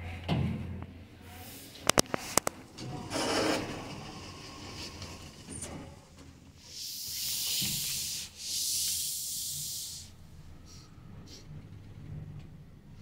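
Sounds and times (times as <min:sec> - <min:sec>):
long airy hisses: 0:06.6 - 0:11.5.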